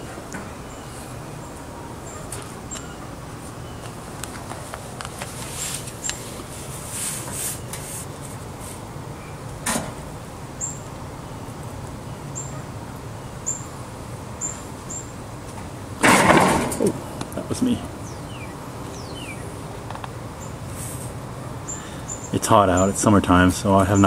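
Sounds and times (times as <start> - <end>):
animal rustling in bedding: 4.2 - 8.8.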